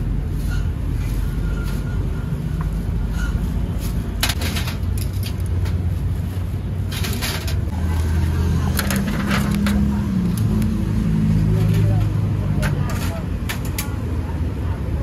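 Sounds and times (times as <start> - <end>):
wire hooks clinking on steel trays: 4.2 - 5.8.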